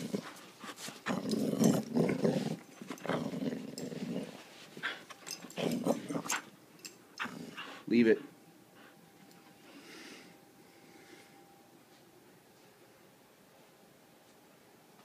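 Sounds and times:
dog growling in play: 0.0 - 6.5, 7.2 - 7.8.

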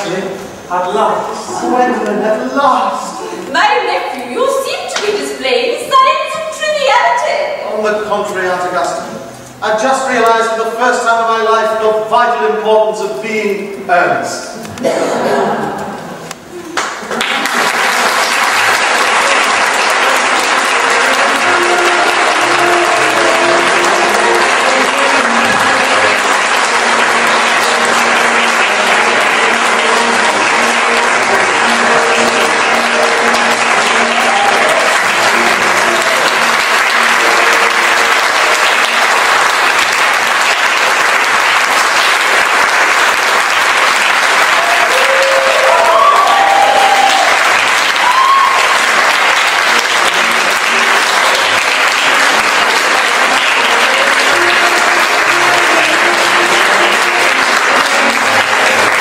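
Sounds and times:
audience applauding: 0.0 - 8.9, 14.7 - 59.0
music playing: 17.7 - 59.0.

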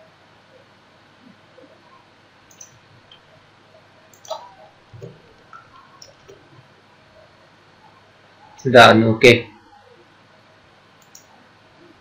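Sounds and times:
keyboard and mouse clicks: 2.5 - 3.2, 4.1 - 4.4, 5.0 - 6.4, 11.0 - 11.3.

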